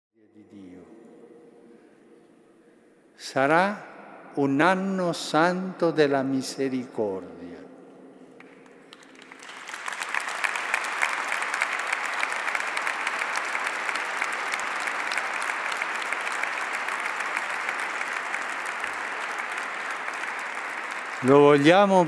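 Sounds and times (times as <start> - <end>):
congregation applauding: 8.4 - 22.0.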